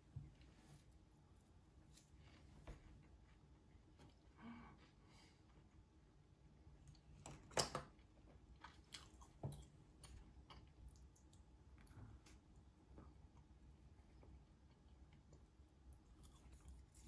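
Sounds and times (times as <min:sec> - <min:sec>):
quiet chewing: 0:08.0 - 0:17.0.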